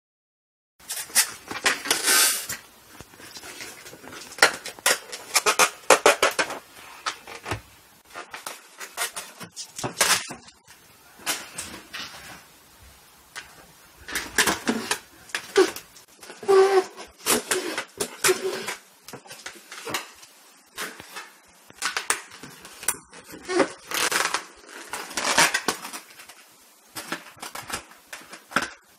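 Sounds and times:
rubber balloon squeaks and scrapes: 14.1 - 18.9, 22.7 - 26.0.

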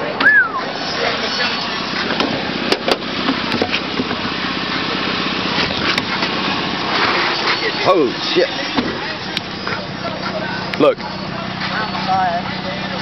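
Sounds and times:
engine and road noise: 0.0 - 13.0.

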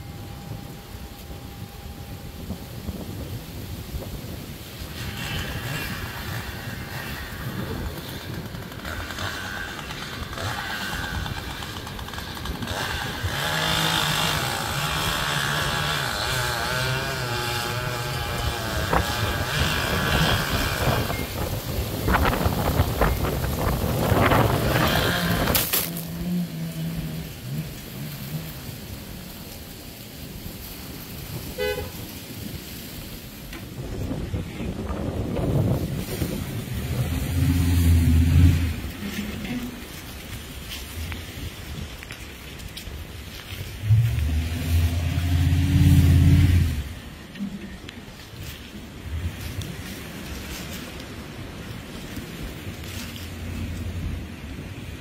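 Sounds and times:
wind buffeting microphone: 0.0 - 55.0
distant chainsaw cutting wood: 4.9 - 28.7.

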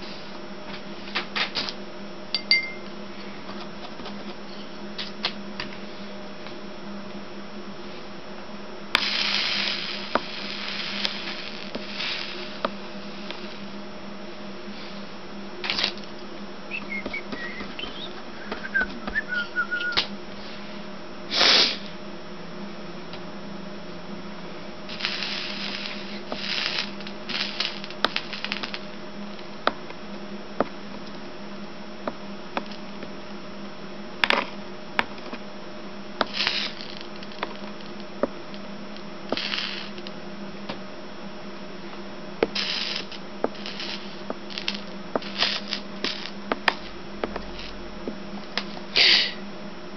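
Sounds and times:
steady low hum: 0.0 - 49.9
soldering iron sizzling: 8.8 - 21.9, 24.4 - 31.3, 32.0 - 33.4, 36.0 - 40.7, 41.8 - 49.4.

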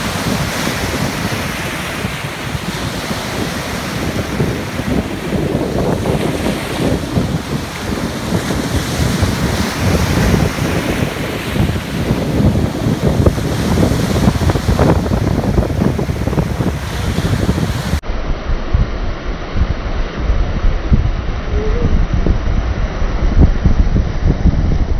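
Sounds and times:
ocean surf breaking: 0.0 - 18.0
wind buffeting microphone: 0.0 - 24.9.

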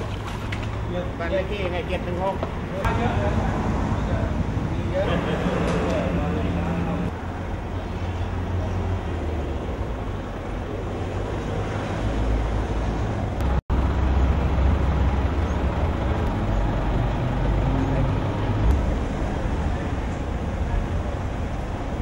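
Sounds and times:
low rumble of road traffic: 0.0 - 22.0.

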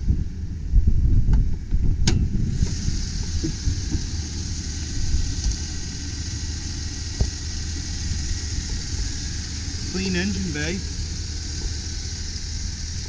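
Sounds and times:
pickup engine idling: 1.5 - 13.0
high hiss: 2.4 - 13.0.

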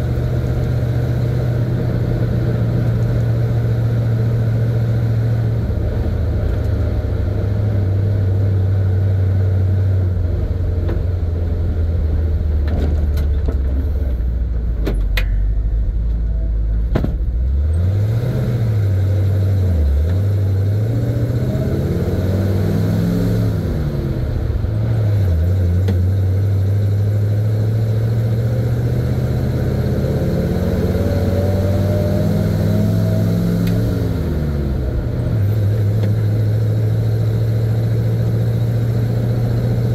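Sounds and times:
truck engine shifting gears: 0.0 - 39.9.

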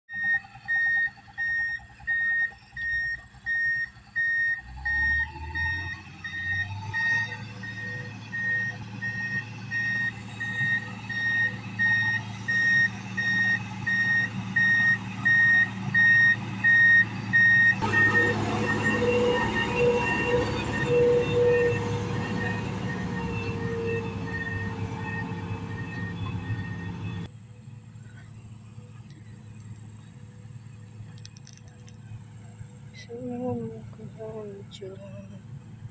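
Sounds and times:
back-up alarm beeping: 0.1 - 27.3
diesel engine whining: 0.1 - 35.9.

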